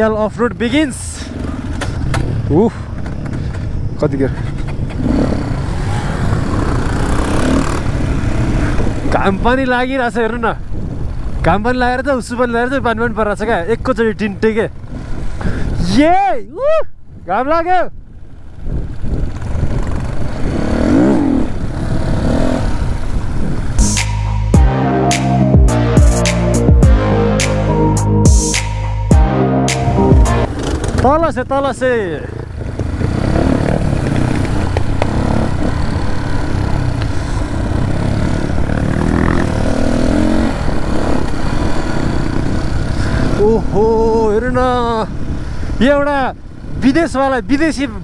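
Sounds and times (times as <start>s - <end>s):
dirt bike engine revving: 4.8s - 9.1s, 19.3s - 28.0s, 28.6s - 31.1s, 32.3s - 43.4s.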